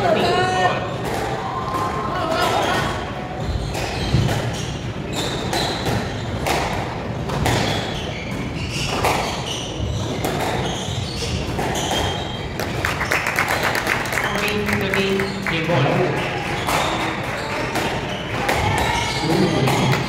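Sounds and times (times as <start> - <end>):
shoes squeaking on wooden floor: 2.5 - 6.4, 7.4 - 12.7.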